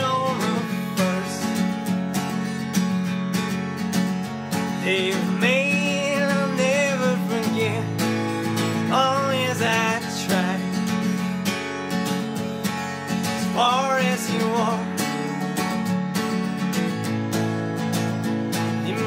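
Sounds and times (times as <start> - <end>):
person singing: 0.0 - 1.7, 4.8 - 7.9, 13.4 - 15.4, 18.8 - 19.0
acoustic guitar: 0.0 - 19.0.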